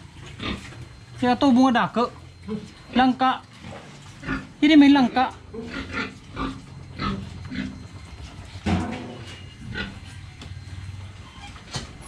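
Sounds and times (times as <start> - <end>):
pigs grunting: 0.0 - 1.0, 2.4 - 10.2.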